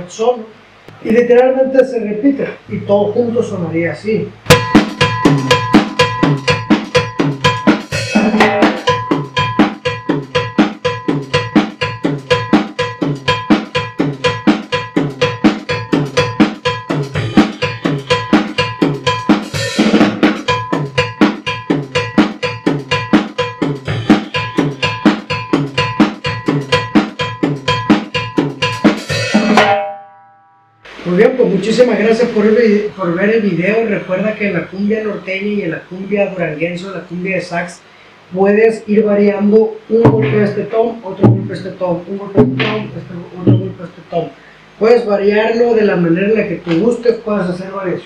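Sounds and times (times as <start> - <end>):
drum kit groove: 4.4 - 29.9, 39.9 - 44.2
cowbell ringing: 4.5 - 19.8, 20.4 - 30.8.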